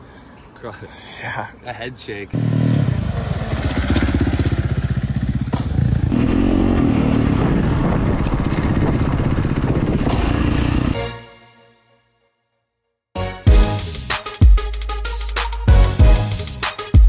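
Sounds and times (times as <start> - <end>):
dirt bike engine revving: 2.4 - 11.0.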